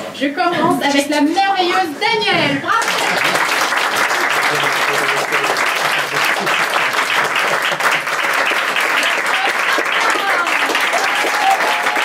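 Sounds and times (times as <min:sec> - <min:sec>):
audience clapping: 0:02.7 - 0:12.0.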